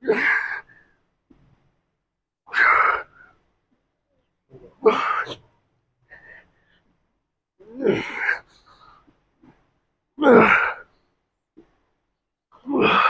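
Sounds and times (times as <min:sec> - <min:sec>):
man grunting from effort: 0:07.7 - 0:08.4, 0:10.2 - 0:10.8, 0:12.6 - 0:13.0.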